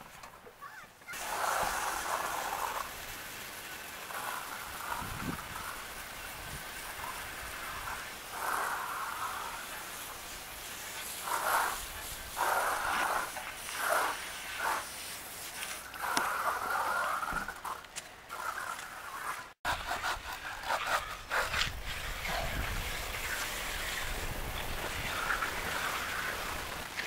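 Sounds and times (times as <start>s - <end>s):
hose water spraying on metal: 1.0s - 27.0s.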